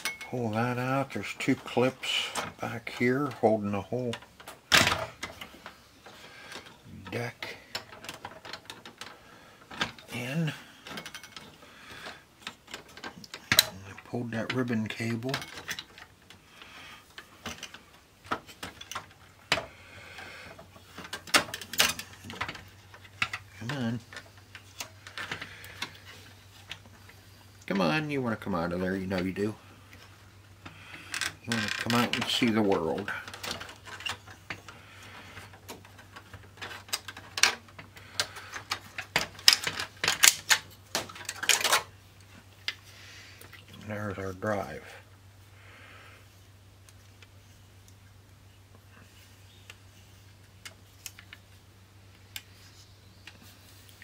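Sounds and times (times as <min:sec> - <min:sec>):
plastic clicks and rattles: 0:31.0 - 0:41.9.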